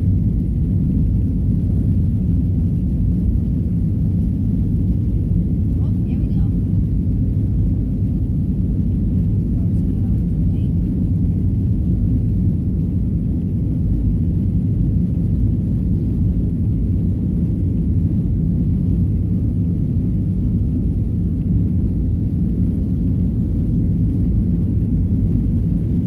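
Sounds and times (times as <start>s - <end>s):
airplane cabin drone while taxiing: 0.0s - 26.0s.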